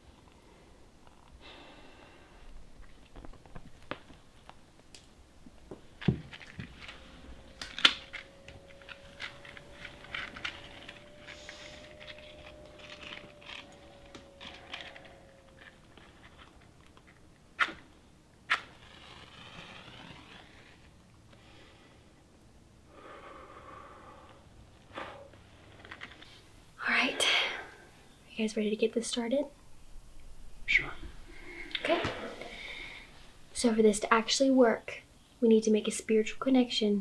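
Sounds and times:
faint steady hum: 0.0 - 37.0
matches scratching and clicking: 6.3 - 17.8.

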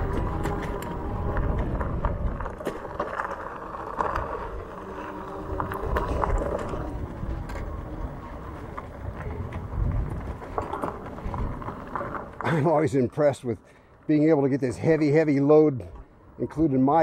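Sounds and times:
bike rattling over bumps: 0.0 - 13.0
tyres rumbling on dirt: 0.0 - 13.2
wind on microphone: 4.2 - 12.2.

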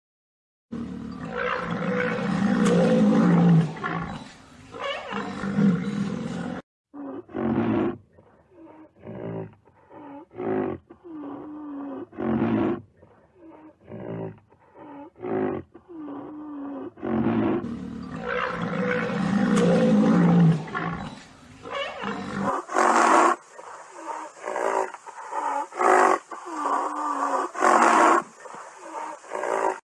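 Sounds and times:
rhinoceros calls: 17.6 - 29.8.

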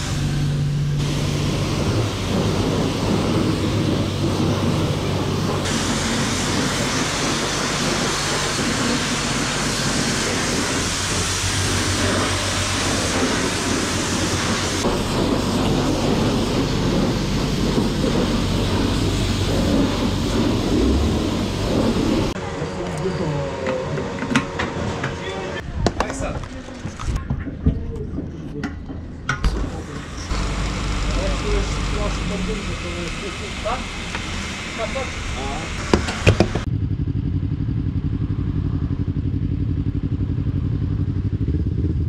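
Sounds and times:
pressure washer spray hiss: 0.0 - 22.4, 30.2 - 36.7
low pump hum: 0.0 - 25.7, 29.5 - 36.7.

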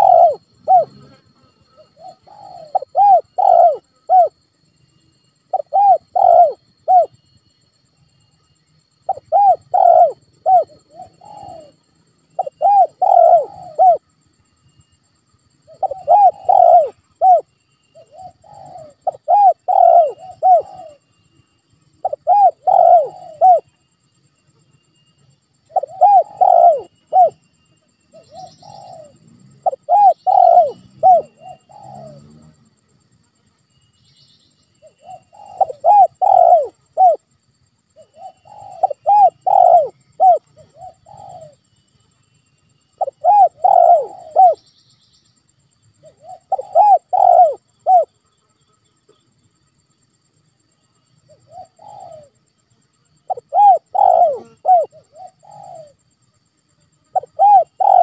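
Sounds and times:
dove cooing: 0.0 - 4.4, 5.5 - 7.2, 9.0 - 14.1, 15.6 - 21.0, 22.0 - 23.8, 25.6 - 27.4, 28.1 - 32.6, 34.8 - 37.3, 38.0 - 41.6, 43.0 - 44.7, 46.0 - 48.2, 51.3 - 52.4, 53.2 - 56.0, 57.1 - 58.0.

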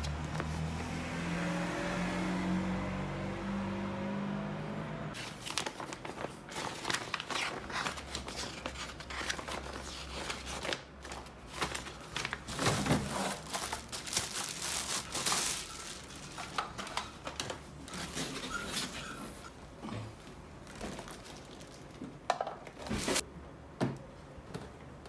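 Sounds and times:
plastic bag crinkling: 5.2 - 18.1, 20.6 - 22.1.

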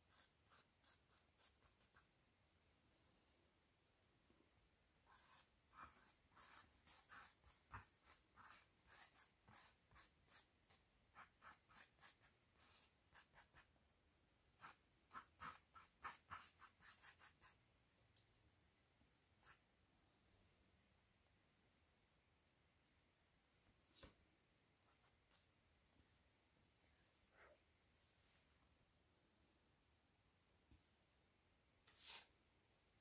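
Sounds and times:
drawing tool scratching on canvas: 5.1 - 10.5, 14.6 - 17.6.

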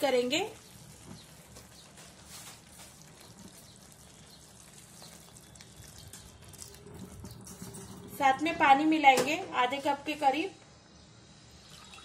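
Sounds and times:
curry sizzling in a pan: 0.0 - 8.0.

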